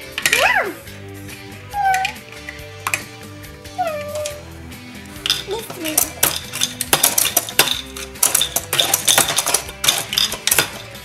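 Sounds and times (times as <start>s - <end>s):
plastic toy parts clicking: 0.0s - 0.5s, 5.2s - 11.0s
background music: 0.0s - 11.0s.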